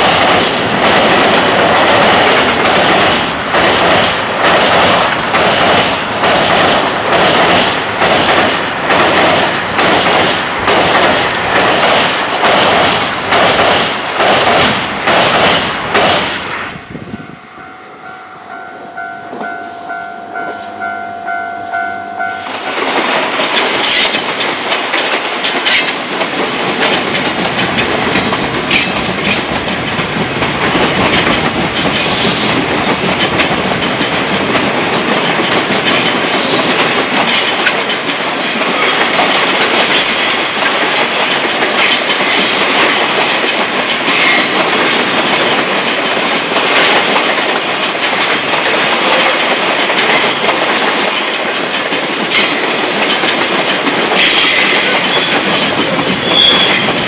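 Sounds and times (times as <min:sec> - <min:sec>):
train wheels clattering over joints: 0:00.0 - 0:16.6, 0:22.4 - 0:57.0
high-pitched wheel squeal: 0:52.3 - 0:53.1, 0:54.2 - 0:57.0.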